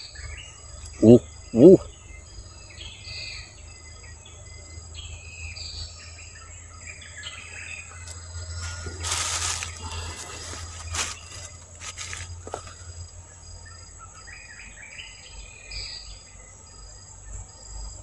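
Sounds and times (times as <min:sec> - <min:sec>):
birds chirping: 0:00.0 - 0:18.0
insects droning: 0:00.0 - 0:18.0
rustling: 0:08.5 - 0:12.9.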